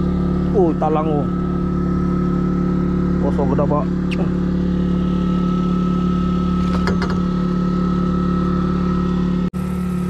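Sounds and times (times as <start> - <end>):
boat engine running steadily: 0.0 - 10.0.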